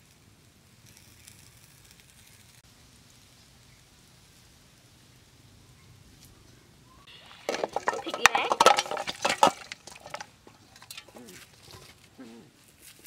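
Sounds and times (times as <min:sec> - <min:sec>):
meat sizzling over charcoal: 0:00.0 - 0:06.2.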